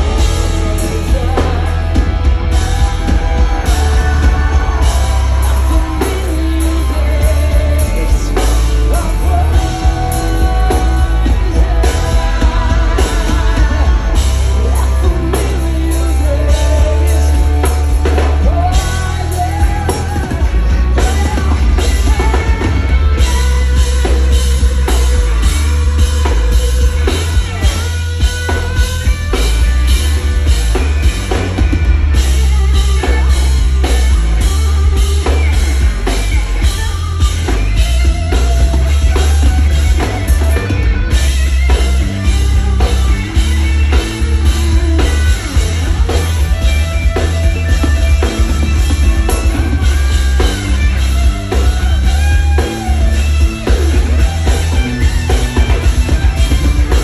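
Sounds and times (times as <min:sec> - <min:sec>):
woman singing: 0:00.0 - 0:27.6, 0:32.2 - 0:40.6
hard rock band playing: 0:00.0 - 0:57.0.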